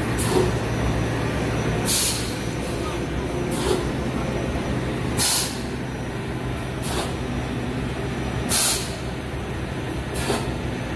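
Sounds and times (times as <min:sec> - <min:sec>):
bursts of hissing air: 0:01.9 - 0:02.5, 0:05.2 - 0:05.7, 0:08.5 - 0:09.1.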